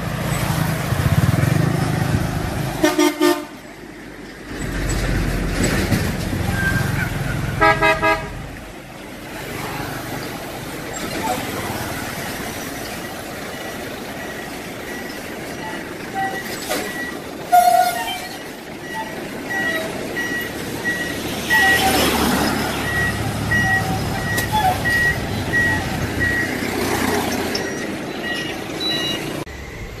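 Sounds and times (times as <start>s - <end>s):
trucks driving past: 0.0s - 30.0s
high electronic beeping: 18.3s - 30.0s.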